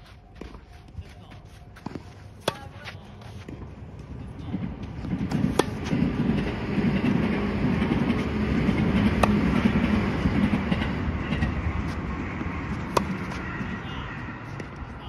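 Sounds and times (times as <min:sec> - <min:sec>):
tennis racket hitting ball: 0:02.4 - 0:03.6, 0:05.0 - 0:06.4, 0:08.8 - 0:10.0, 0:12.7 - 0:13.8.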